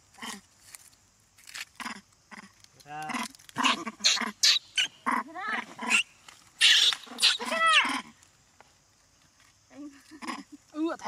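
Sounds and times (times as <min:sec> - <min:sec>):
monkeys screeching and squealing: 0:03.1 - 0:08.1.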